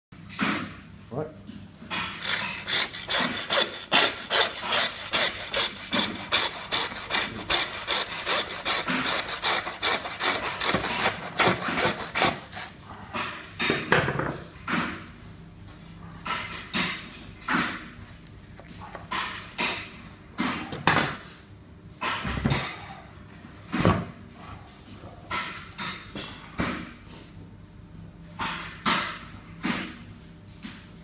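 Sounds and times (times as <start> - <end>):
hand saw cutting through bone: 2.2 - 12.8.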